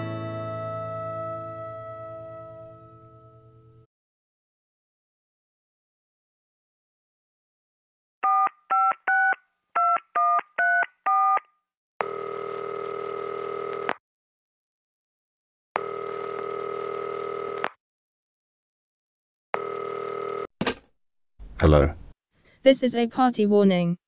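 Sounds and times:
telephone keypad tones: 8.2 - 11.4
telephone ringing tone: 8.2 - 11.4, 12.0 - 13.9, 15.8 - 17.7, 19.6 - 20.5.

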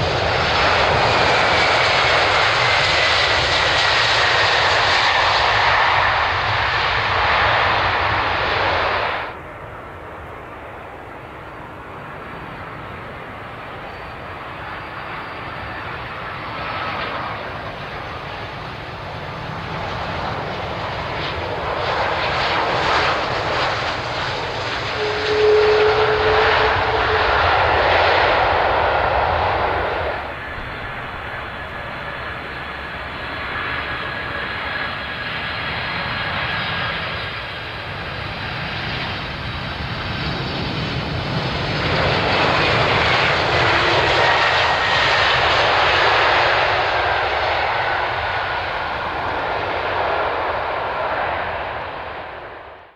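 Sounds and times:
jet engine whine sliding down: 0.0 - 52.9
jet engines roaring: 0.0 - 52.9.

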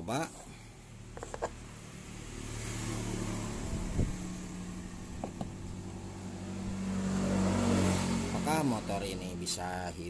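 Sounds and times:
low engine hum: 0.4 - 10.0
light knocks and clicks: 5.2 - 5.5.

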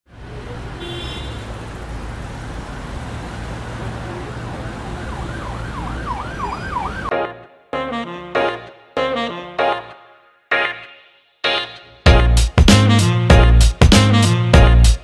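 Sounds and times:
car rumbling on the move: 0.1 - 7.0
emergency siren yelping: 4.1 - 7.2
saxophone music: 7.1 - 15.0.

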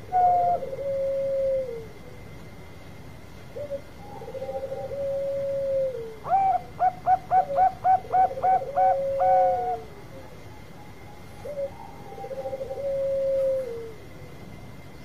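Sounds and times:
dove cooing: 0.0 - 2.3, 3.5 - 14.2.

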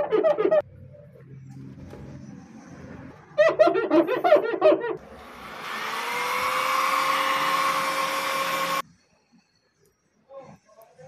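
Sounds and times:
hair dryer blowing: 5.1 - 8.8.

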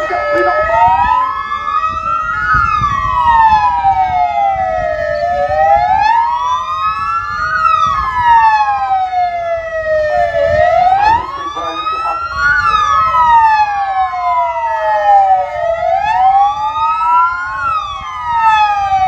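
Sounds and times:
steady high tone: 0.0 - 1.8
ambulance sirens wailing: 0.0 - 19.0.

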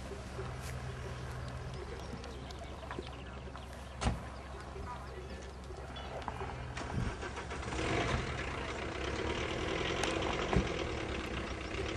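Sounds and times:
car engine starting and running: 6.3 - 11.9.

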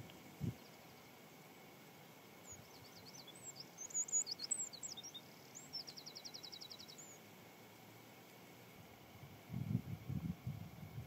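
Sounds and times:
songbird singing: 0.0 - 8.4.

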